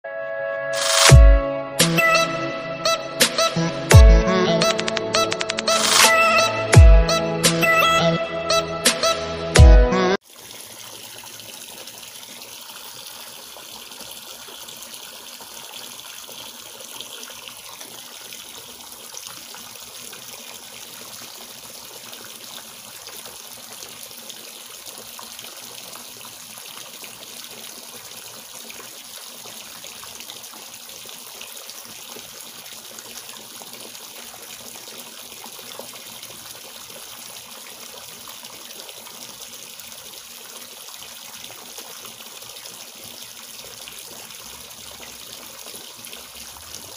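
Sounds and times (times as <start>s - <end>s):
water pouring into pond: 10.2s - 46.9s.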